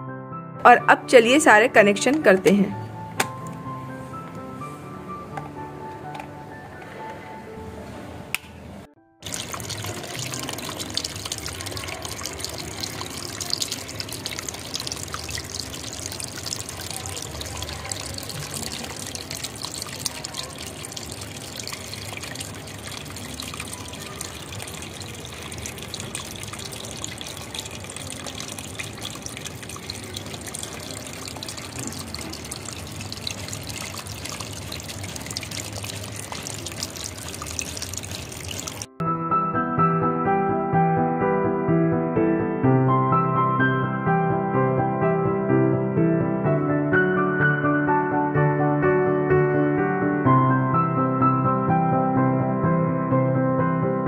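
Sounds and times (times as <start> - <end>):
water trickling onto pebbles: 9.2 - 38.9.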